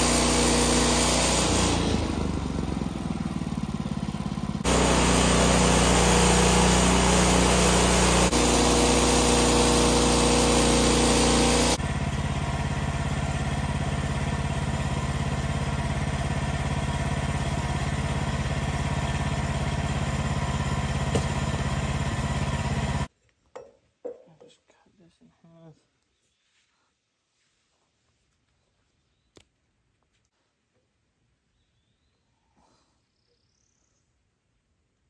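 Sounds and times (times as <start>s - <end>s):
small petrol engine running: 0.0s - 23.1s.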